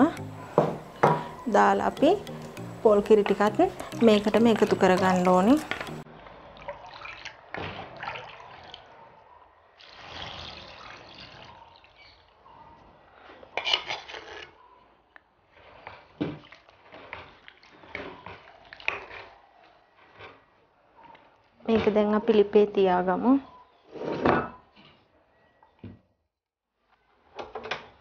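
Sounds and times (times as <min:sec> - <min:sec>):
ladle scraping and knocking pot: 0:00.1 - 0:06.0
liquid pouring and splashing: 0:05.6 - 0:09.0, 0:09.8 - 0:12.2.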